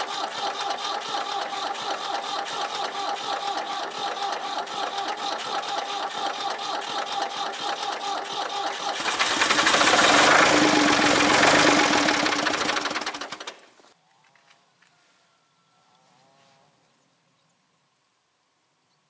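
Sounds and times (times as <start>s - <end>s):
tractor diesel engine running: 0.0s - 14.0s.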